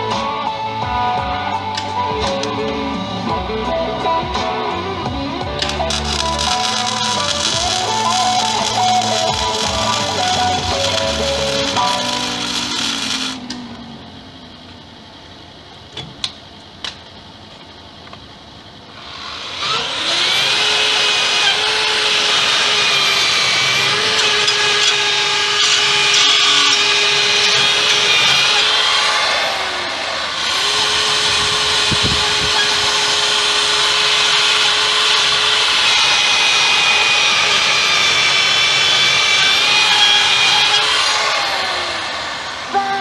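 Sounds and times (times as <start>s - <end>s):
angle grinder wire brush whining: 1.6s - 15.1s, 18.9s - 43.0s
wire brush rasping on metal: 5.6s - 13.4s, 20.7s - 29.4s, 30.6s - 41.4s.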